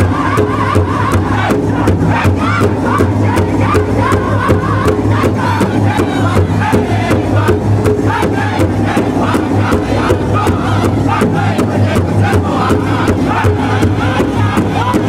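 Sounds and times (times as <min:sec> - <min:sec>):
drum group singing in unison: 0:00.0 - 0:15.0
large hide drum beating: 0:00.0 - 0:15.0
women singing: 0:00.0 - 0:15.0.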